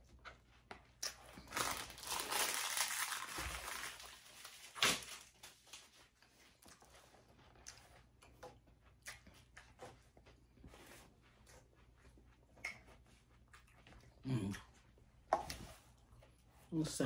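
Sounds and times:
crinkling crunching rustle: 1.2 - 5.9.

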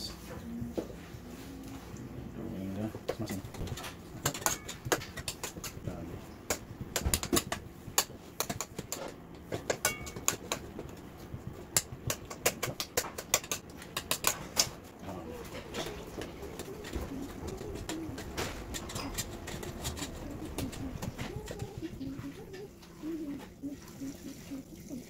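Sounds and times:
metal spoon scraping cake tin: 15.6 - 22.2.

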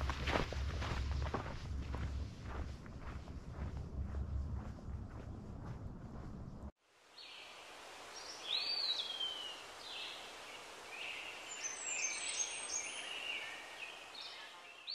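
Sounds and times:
faint outdoor hiss: 6.8 - 14.9.

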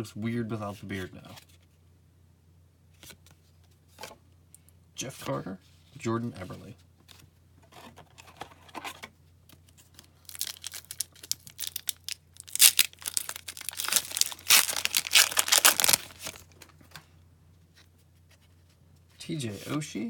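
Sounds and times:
foil wrapper tearing and crinkling: 10.2 - 16.7.

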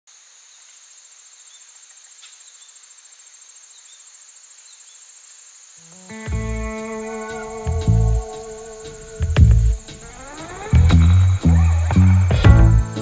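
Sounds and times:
crickets chirping: 0.1 - 13.0
music with sustained notes: 6.0 - 13.0
deep low boom: 10.8 - 13.0.

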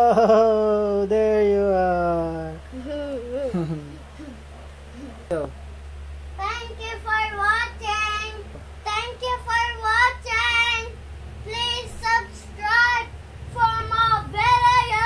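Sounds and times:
child singing: 6.4 - 15.0.

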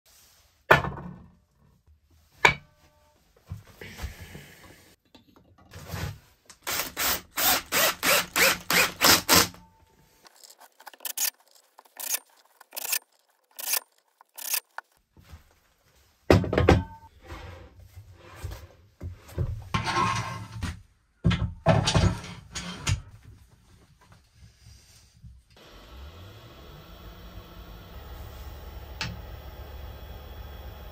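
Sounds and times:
knocks and clunks of wood and metal: 0.7 - 1.6, 16.3 - 17.1, 19.0 - 23.2
cordless drill driving screws: 6.6 - 9.6, 10.3 - 14.8.

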